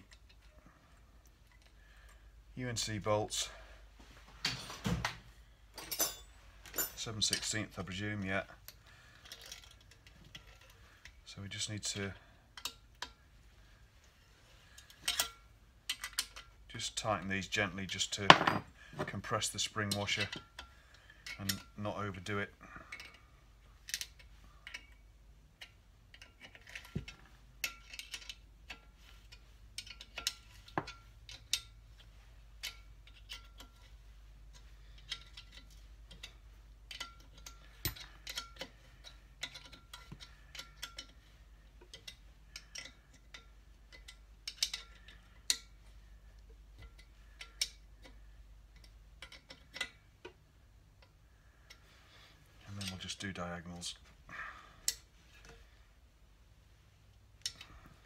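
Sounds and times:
spanner clicking on bolts: 34.5s - 45.8s.

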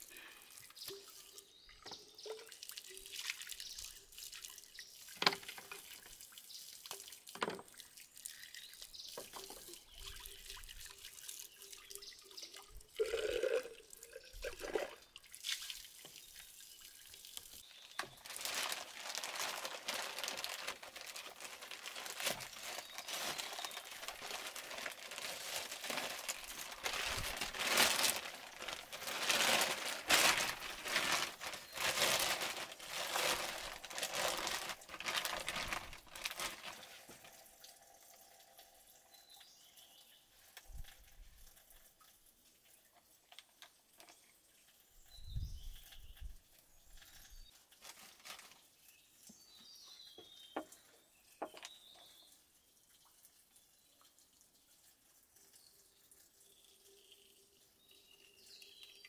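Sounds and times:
water dripping and splashing: 0.0s - 59.0s.

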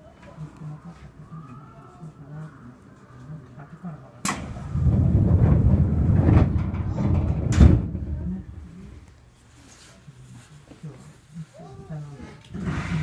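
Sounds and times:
train doors thudding shut: 4.2s - 8.2s
loud low rumbling: 4.4s - 9.2s.

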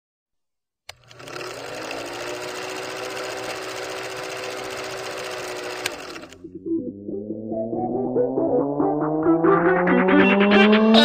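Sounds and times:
film projector clattering and whirring: 0.9s - 6.4s.

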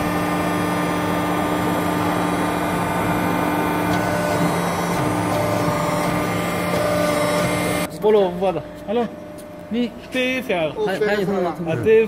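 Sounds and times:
hydraulic pump motor humming: 0.0s - 7.9s.

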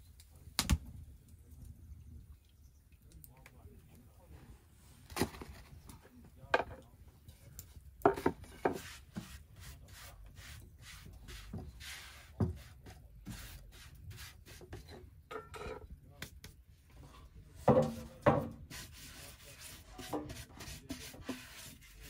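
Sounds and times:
scraping and rubbing: 18.6s - 22.0s.

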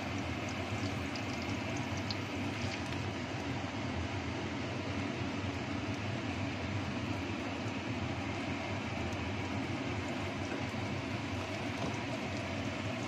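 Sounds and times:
paste crackling in hot oil: 0.0s - 3.6s
range hood fan humming: 0.0s - 13.0s.

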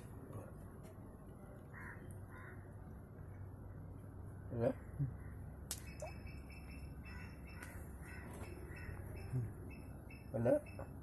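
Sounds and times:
crow cawing: 1.7s - 2.7s, 7.0s - 9.2s.

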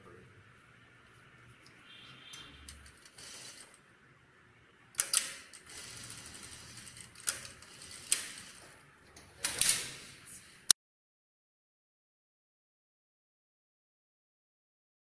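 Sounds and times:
sewing machine clicking and clattering: 5.0s - 8.8s.

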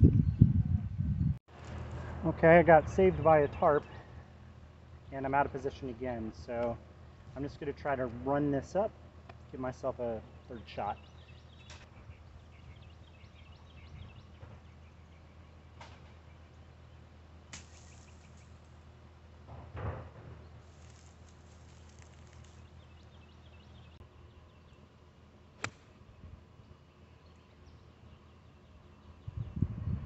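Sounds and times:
faint birdsong: 0.0s - 30.0s
golf club striking ball: 25.6s - 25.9s.

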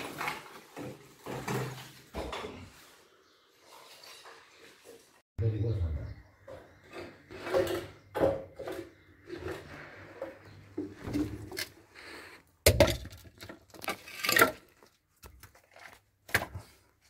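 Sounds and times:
rubble clinking and scraping: 6.4s - 16.3s.

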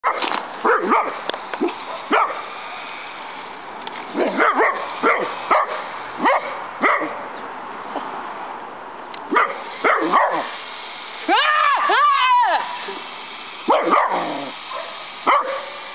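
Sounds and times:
dog barking: 0.0s - 2.4s, 4.2s - 7.2s, 9.3s - 10.5s, 13.7s - 15.9s.

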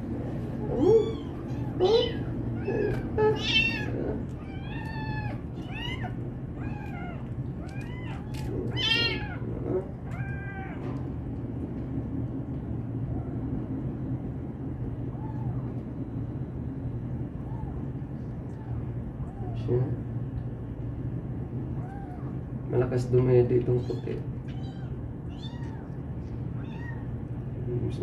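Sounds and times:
steady low hum: 0.0s - 28.0s
kitten mewing: 0.6s - 11.0s, 18.5s - 19.7s, 21.8s - 22.4s, 26.6s - 27.1s.

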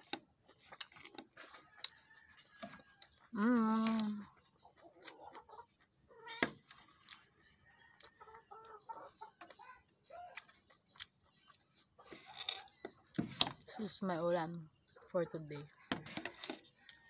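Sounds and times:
eating clicks and smacks: 10.2s - 11.7s.

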